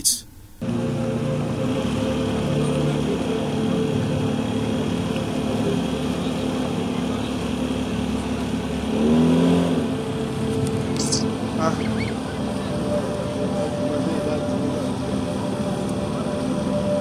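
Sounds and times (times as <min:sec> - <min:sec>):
motorboat engine running: 0:00.4 - 0:17.0.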